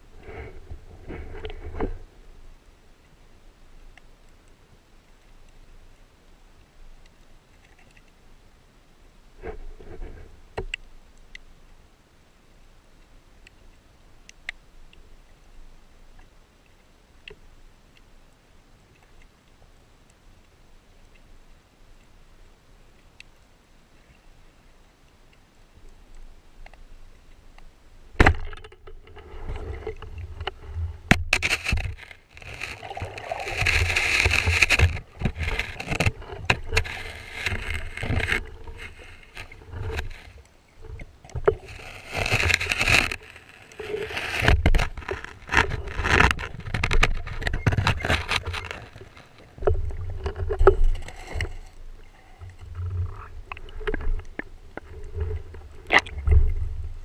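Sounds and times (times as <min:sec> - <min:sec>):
underwater water sloshing: 0:24.0 - 0:57.0.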